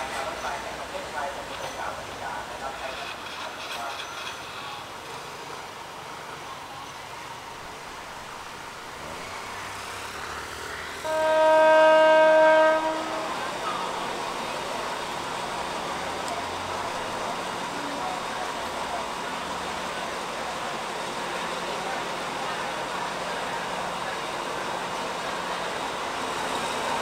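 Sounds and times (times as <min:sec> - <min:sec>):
train engine noise: 0:00.0 - 0:27.0
train horn blast: 0:11.0 - 0:13.6.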